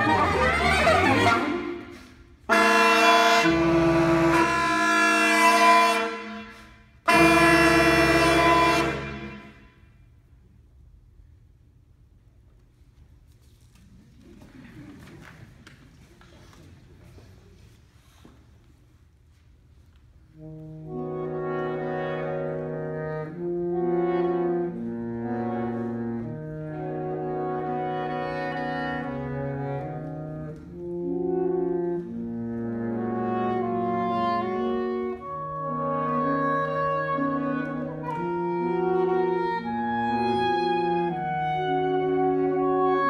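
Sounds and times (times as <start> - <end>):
saxophone quartet playing chords: 0.0 - 10.2, 20.3 - 43.0.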